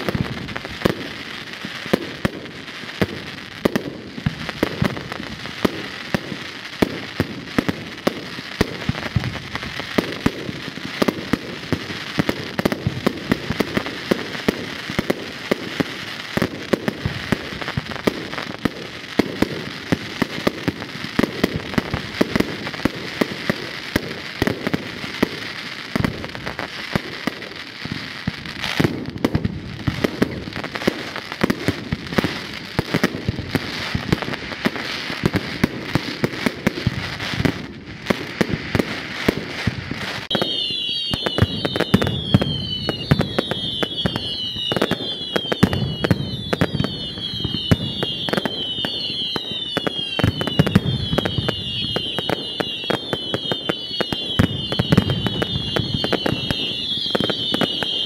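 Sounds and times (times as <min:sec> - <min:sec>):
fireworks crackle: 0:00.0 - 0:58.0
fireworks cracks and bangs: 0:00.0 - 0:58.0.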